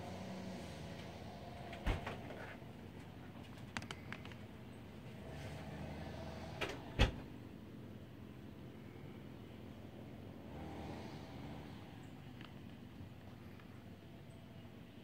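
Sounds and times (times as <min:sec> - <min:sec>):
low background hum: 0:06.5 - 0:10.5.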